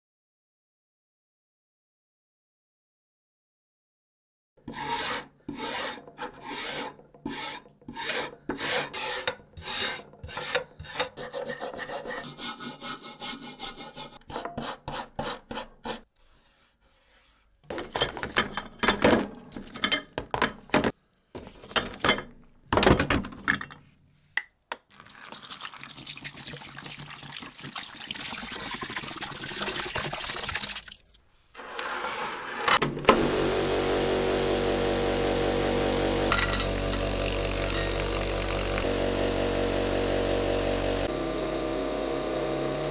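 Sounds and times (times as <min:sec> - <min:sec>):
hand tool filing strokes: 0:04.6 - 0:17.6
power tool running: 0:33.0 - 0:42.9.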